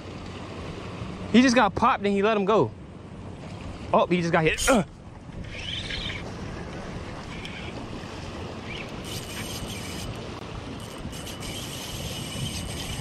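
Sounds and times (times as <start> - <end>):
wind buffeting microphone: 3.5 - 13.0.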